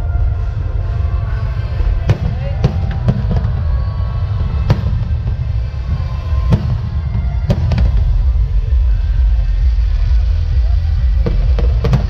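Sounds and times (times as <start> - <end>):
low rumble: 0.0 - 12.0.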